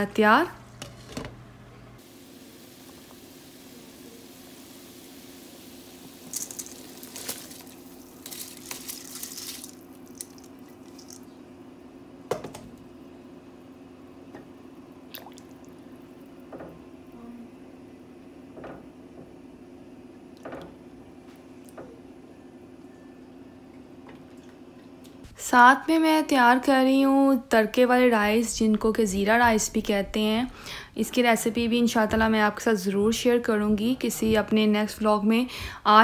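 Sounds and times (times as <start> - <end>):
low steady hum: 0.0 - 36.0
rice pouring into water: 6.2 - 11.2.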